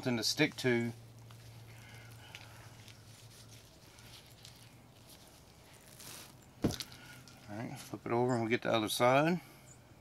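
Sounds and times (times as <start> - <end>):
low steady hum: 0.0 - 10.0
gloved hand squishing mustard on meat: 0.5 - 7.3.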